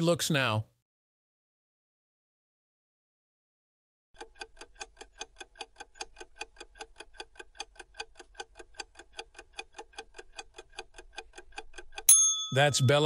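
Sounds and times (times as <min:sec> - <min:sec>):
quick clock ticks: 0:04.2 - 0:13.0.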